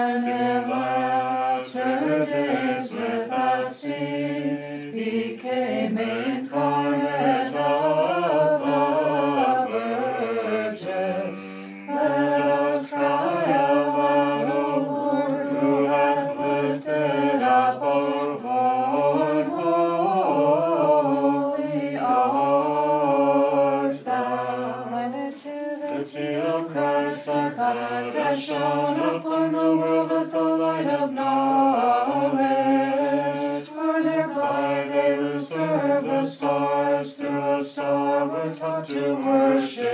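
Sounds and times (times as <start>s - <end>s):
unaccompanied voices chanting: 0.0s - 39.9s
singers breathing: 11.3s - 11.9s.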